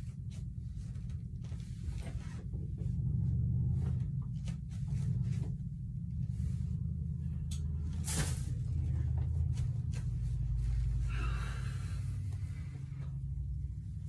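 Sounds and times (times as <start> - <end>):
fabric rustling: 0.0 - 2.8, 7.8 - 11.1
steady low hum: 0.0 - 14.0.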